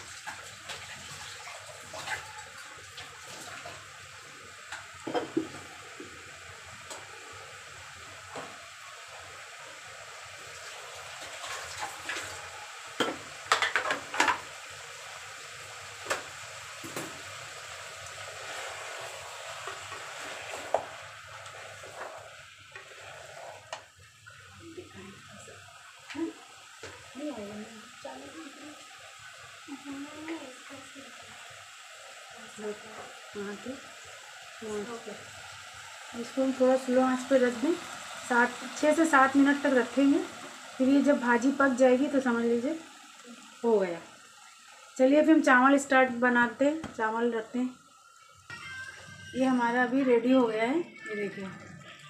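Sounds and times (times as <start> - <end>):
tap water running into sink: 0.0 - 4.0, 4.6 - 7.2, 10.4 - 14.8, 15.9 - 17.4, 18.0 - 24.6, 32.6 - 49.4.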